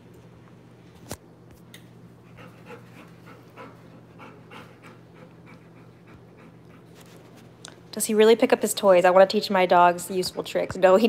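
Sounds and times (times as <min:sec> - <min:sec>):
low steady hum: 0:00.0 - 0:11.0
dog panting: 0:02.2 - 0:07.4.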